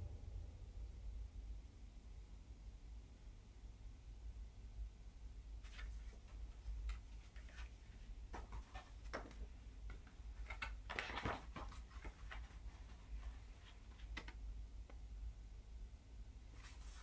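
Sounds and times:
low room hum: 0.0s - 17.0s
paper rustling and tapping: 5.6s - 14.4s.

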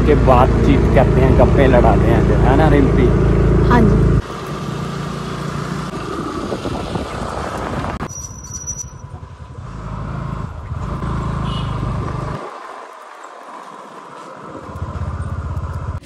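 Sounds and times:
motor scooter running: 0.0s - 8.0s, 9.0s - 16.0s
wind buffeting microphone: 5.9s - 8.1s.

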